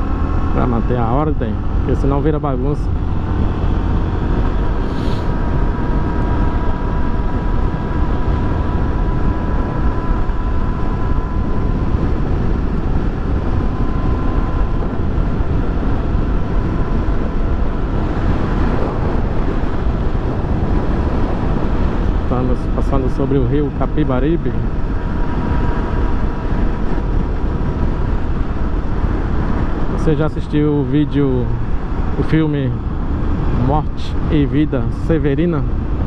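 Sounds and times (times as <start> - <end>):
motorcycle engine running: 0.0 - 29.9
faint steady whine: 0.0 - 36.0
wind and road rush: 0.0 - 36.0.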